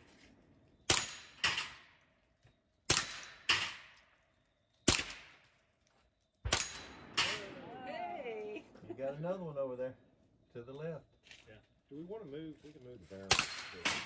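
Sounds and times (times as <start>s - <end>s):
rifle shots: 0.8s - 2.0s, 2.9s - 4.0s, 4.8s - 5.5s, 6.4s - 7.8s, 13.3s - 14.0s
sharp crack: 4.8s - 5.4s, 6.5s - 7.6s, 13.3s - 14.0s.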